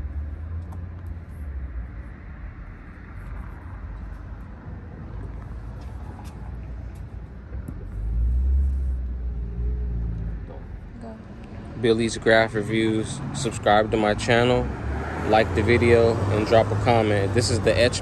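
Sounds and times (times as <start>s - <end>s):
street traffic rumble: 0.0s - 18.0s
vehicle passing close by: 11.3s - 18.0s.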